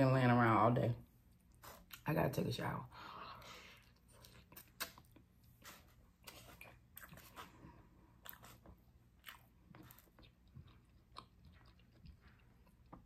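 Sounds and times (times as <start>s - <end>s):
person chewing food: 3.4s - 13.0s.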